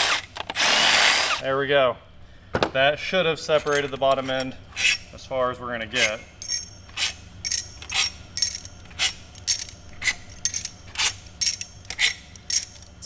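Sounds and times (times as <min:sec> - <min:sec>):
metallic tool clinks: 0:03.5 - 0:04.4, 0:05.9 - 0:13.0.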